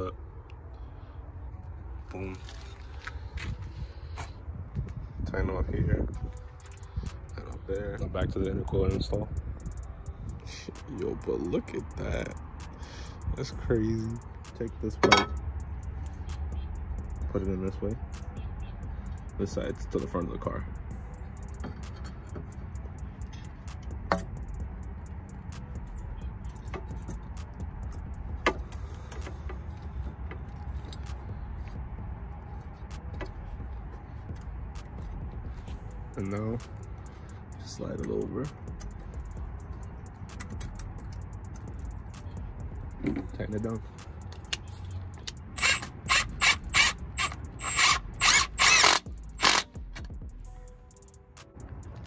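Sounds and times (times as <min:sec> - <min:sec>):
low rumble: 0:00.0 - 0:19.5, 0:20.4 - 0:52.0
cordless power tool bursts: 0:45.6 - 0:49.7.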